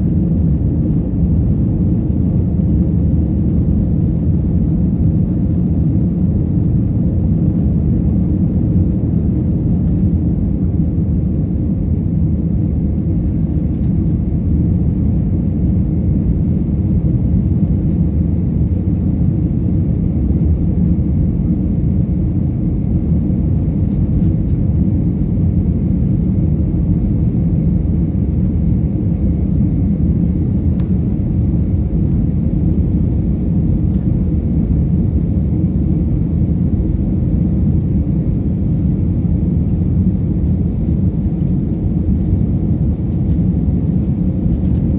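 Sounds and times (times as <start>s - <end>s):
jet engines roaring in cabin: 0.0s - 44.9s.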